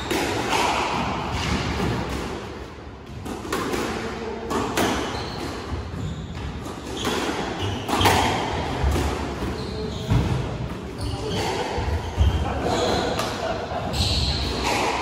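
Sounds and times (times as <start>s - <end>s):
squash ball hits: 0.0s - 5.7s, 6.3s - 10.5s.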